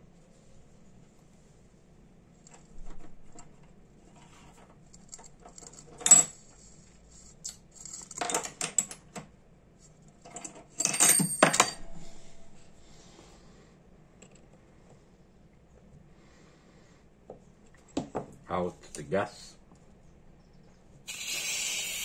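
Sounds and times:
high metallic ring: 0:10.9 - 0:13.4.

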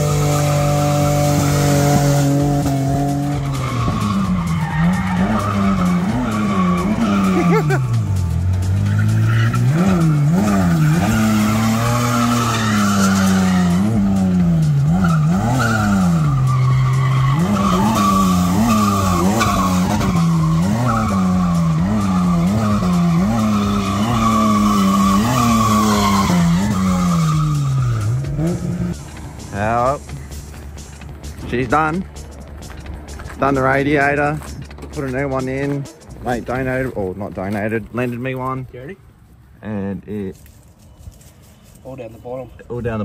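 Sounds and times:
tyres squealing: 0:00.0 - 0:30.1
car engine revving: 0:00.0 - 0:36.8.

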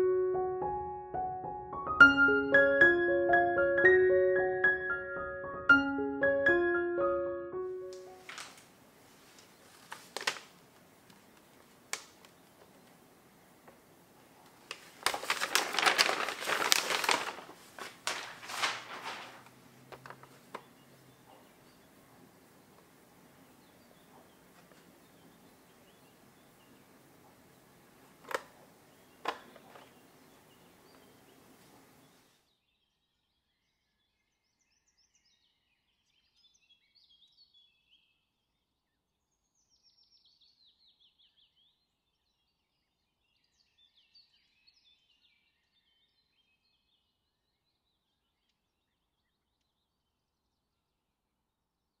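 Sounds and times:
low hiss: 0:07.6 - 0:32.4
birds chirping and trilling: 0:20.0 - 0:27.5, 0:28.6 - 0:38.3.

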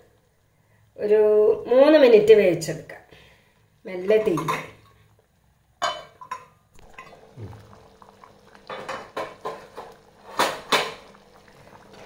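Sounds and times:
metal clinking against clay pot: 0:05.8 - 0:07.2.

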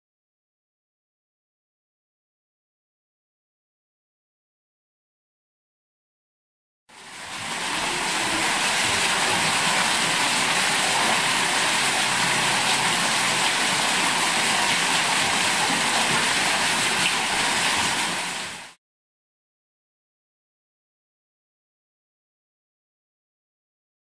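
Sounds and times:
waterfall splashing into pool: 0:06.9 - 0:18.8.

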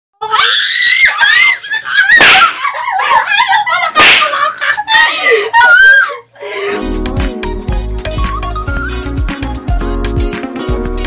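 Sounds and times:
women laughing and shrieking: 0:00.2 - 0:06.4.

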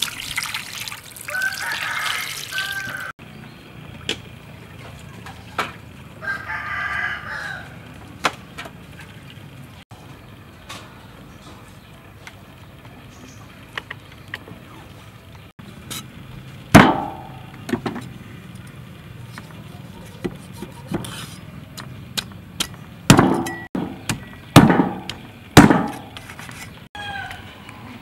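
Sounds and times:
cleaver chopping on wooden block: 0:21.8 - 0:26.2.

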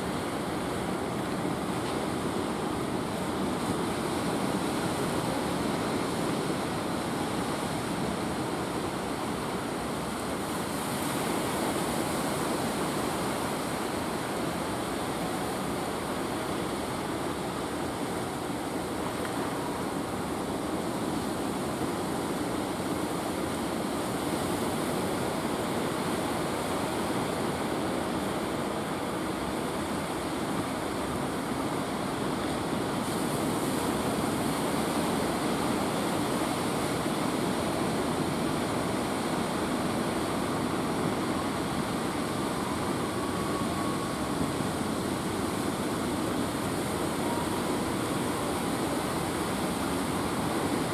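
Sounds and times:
surf washing onto beach: 0:00.0 - 0:50.9.

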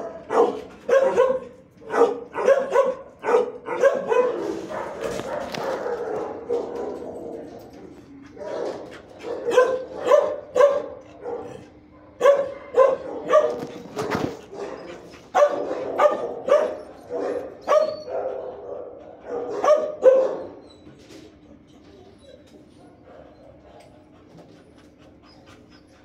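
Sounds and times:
dog barking: 0:00.0 - 0:07.2, 0:08.4 - 0:20.6.

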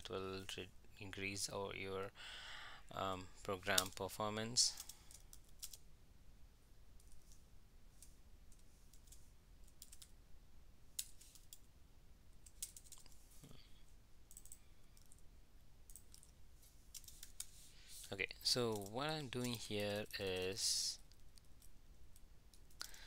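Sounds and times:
typing on a keyboard: 0:08.5 - 0:10.1, 0:14.3 - 0:15.2, 0:18.7 - 0:21.6.

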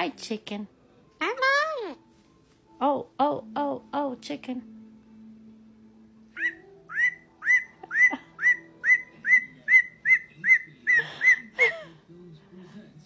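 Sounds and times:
cockatoo whistling rising notes: 0:06.4 - 0:10.6.

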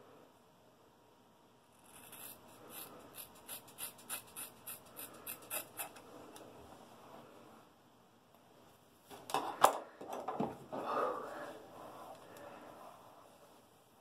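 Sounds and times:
scissors snipping hair: 0:01.8 - 0:06.0.

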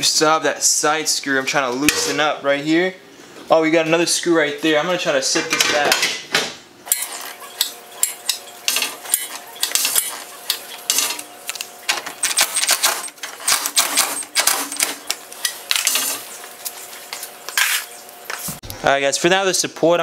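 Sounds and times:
metal parts clanking: 0:06.9 - 0:16.3.

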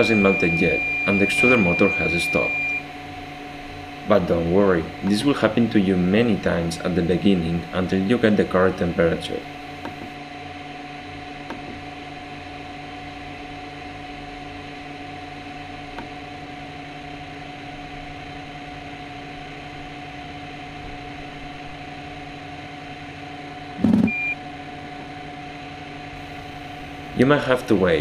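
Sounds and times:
brief high beep: 0:00.0 - 0:02.8, 0:24.0 - 0:24.4
machine hum with fan noise: 0:00.0 - 0:28.0.

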